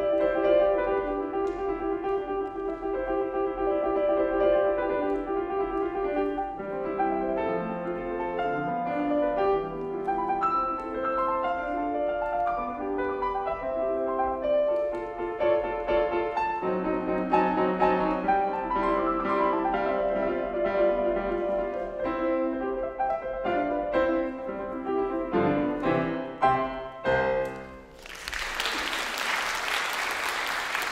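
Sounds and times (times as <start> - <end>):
solo classical piano: 0.0 - 28.0
audience applause: 27.9 - 30.9.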